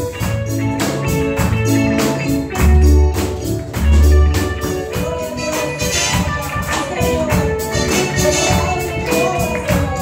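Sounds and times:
electric guitar: 0.0 - 10.0
keyboard: 0.0 - 10.0.

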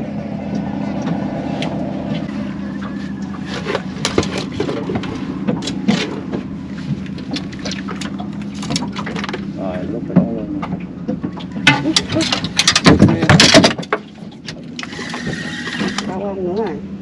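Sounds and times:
boat motor running: 0.0 - 17.0
knocks and clicks: 10.2 - 16.1.

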